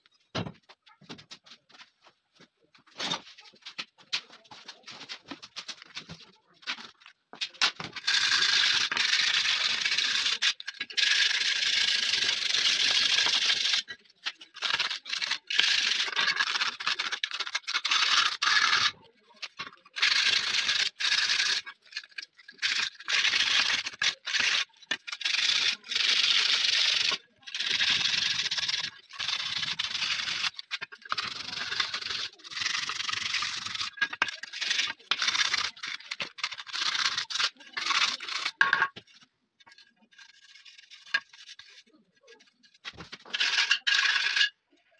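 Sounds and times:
hand sanding scraping: 0:08.0 - 0:38.6.

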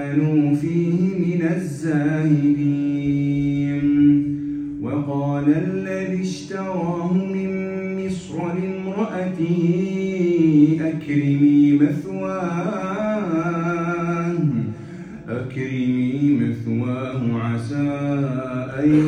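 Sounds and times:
man chanting melodically: 0:00.0 - 0:19.0.

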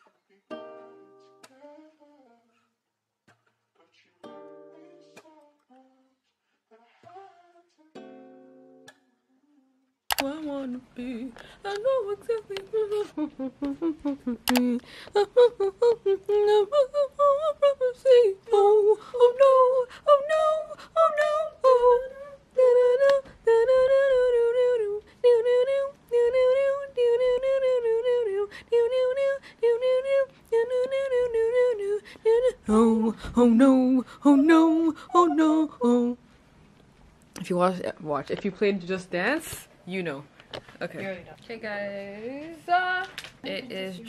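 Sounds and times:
woman singing unaccompanied: 0:10.1 - 0:36.2, 0:42.0 - 0:44.0.

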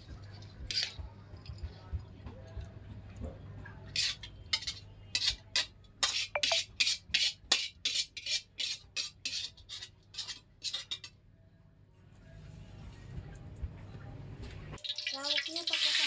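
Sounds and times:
metal spatula scraping wok: 0:03.9 - 0:11.2.

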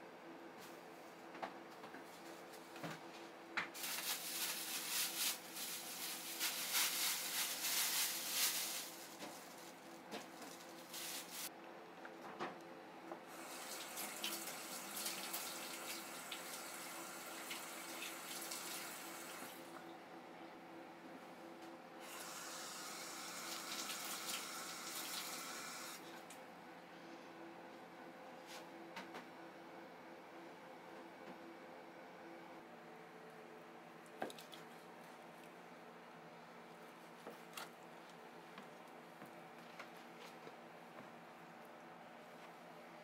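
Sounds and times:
water running from a tap: 0:13.4 - 0:19.5, 0:22.8 - 0:26.0.

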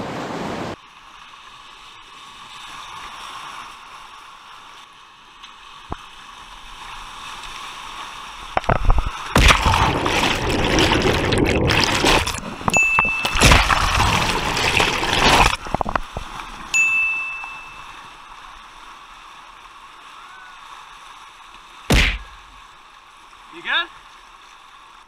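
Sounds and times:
whitewater rushing: 0:08.4 - 0:16.2
short high beep: 0:12.7 - 0:13.5, 0:16.8 - 0:18.1.

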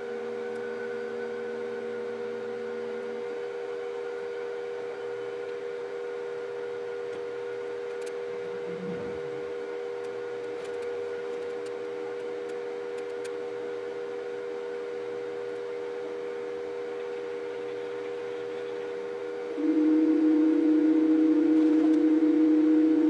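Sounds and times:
printer fans and motors humming: 0:00.0 - 0:23.0
lower louder hum: 0:08.2 - 0:10.5, 0:19.5 - 0:23.0.

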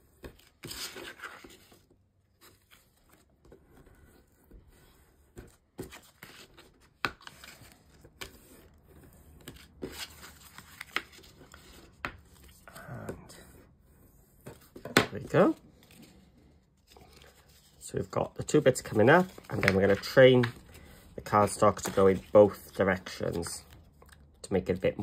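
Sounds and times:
bone folder scraping card: 0:00.1 - 0:12.8, 0:19.2 - 0:24.2
card rustling: 0:00.2 - 0:13.6, 0:14.4 - 0:25.0.

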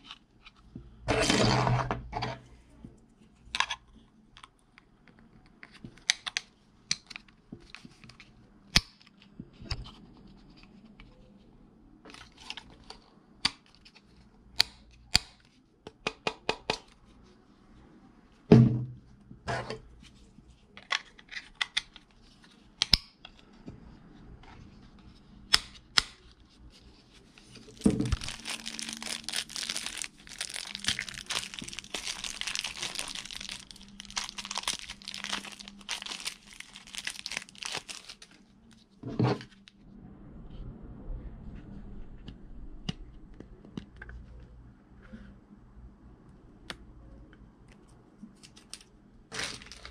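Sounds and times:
plastic bag crinkling: 0:27.6 - 0:38.8, 0:48.4 - 0:49.9.

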